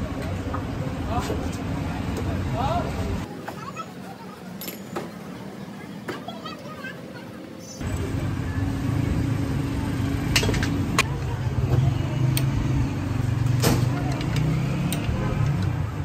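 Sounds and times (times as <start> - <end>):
motor vehicle engine running: 7.8 - 16.0.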